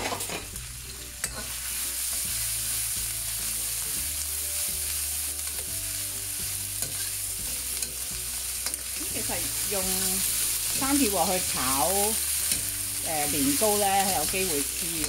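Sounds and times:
metal spatula scraping wok: 0:00.0 - 0:02.2, 0:06.7 - 0:15.0
food sizzling in wok: 0:00.0 - 0:15.0.

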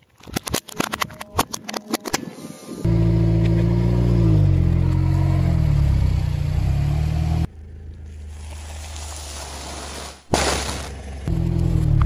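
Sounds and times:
car engine running at low revs: 0:02.9 - 0:09.0, 0:10.5 - 0:12.0.

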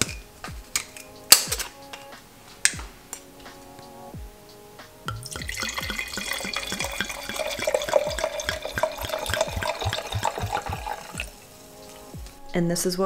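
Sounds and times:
wine pouring and glugging: 0:05.1 - 0:11.4.

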